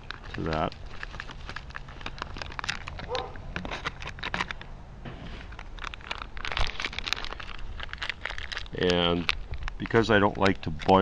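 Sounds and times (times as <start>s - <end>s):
potato flakes pouring: 0.0s - 2.8s, 5.8s - 11.0s
plastic pouches crinkling: 0.0s - 4.8s, 5.4s - 11.0s.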